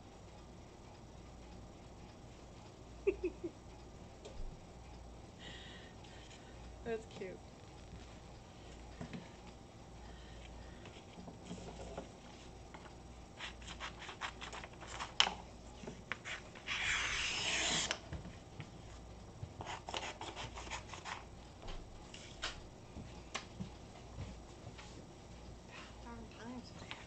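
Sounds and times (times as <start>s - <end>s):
low steady hum: 0.0s - 27.0s
scraping rub: 16.2s - 17.9s.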